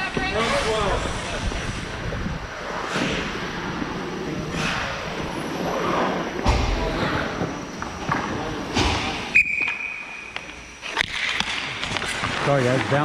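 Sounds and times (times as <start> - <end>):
skates scraping on ice: 2.5 - 8.5, 10.8 - 13.0
referee's whistle: 9.3 - 10.3
dull thumps of puck and sticks: 10.4 - 13.0.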